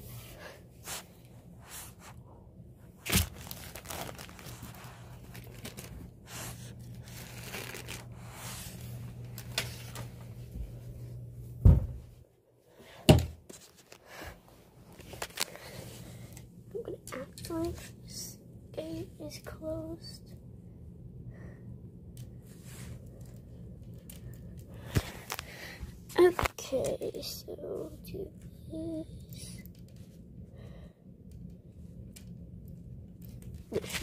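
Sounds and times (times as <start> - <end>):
soft rustling and scraping: 22.3 - 26.9.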